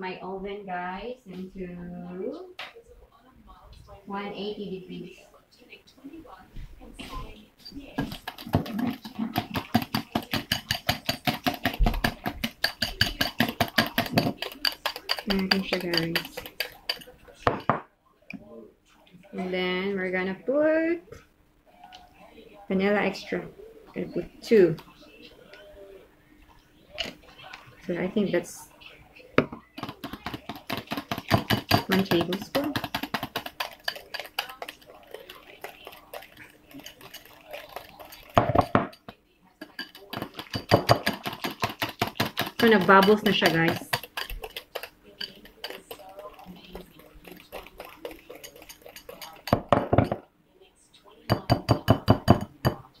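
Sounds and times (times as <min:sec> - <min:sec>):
whisk clicking against glass bowl: 0:08.0 - 0:17.7, 0:29.8 - 0:50.2, 0:51.3 - 0:52.8.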